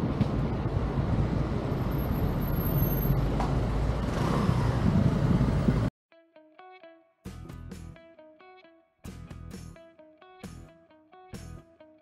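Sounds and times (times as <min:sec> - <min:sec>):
city traffic rumble: 0:00.0 - 0:05.9.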